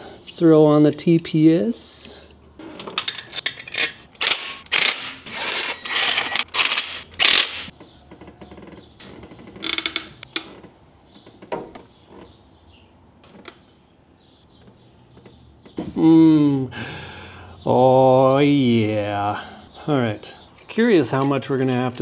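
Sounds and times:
hand ratchet clicking: 4.1s - 7.7s.

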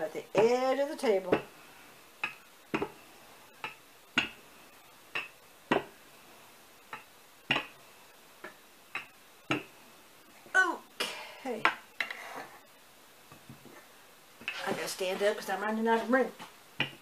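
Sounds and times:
rolling pin knocking on wooden table: 2.2s - 3.0s, 5.2s - 6.0s.

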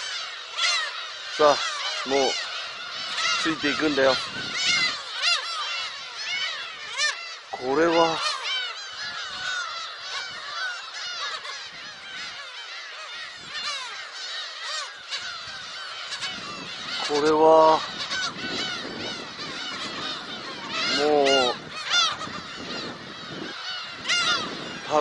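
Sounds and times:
flock of gulls calling: 0.0s - 25.0s
loud close gull call: 0.0s - 25.0s.

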